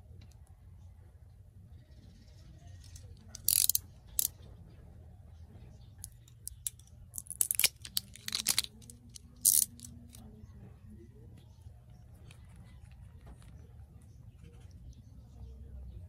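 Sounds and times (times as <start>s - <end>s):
scissors snipping plastic: 3.4s - 4.3s, 6.3s - 9.9s
plastic wrap crinkling: 7.2s - 9.9s.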